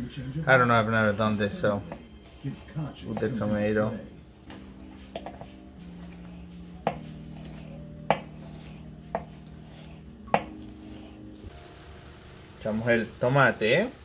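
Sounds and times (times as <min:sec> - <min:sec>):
knife slicing tomato: 0:05.2 - 0:11.4
blade knocking on cutting board: 0:06.8 - 0:07.1, 0:08.0 - 0:08.5, 0:09.1 - 0:09.4, 0:10.3 - 0:10.7.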